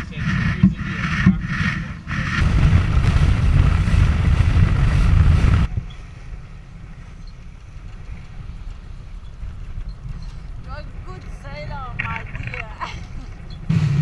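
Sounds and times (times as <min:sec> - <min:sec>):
wind buffeting microphone: 0:00.0 - 0:13.7.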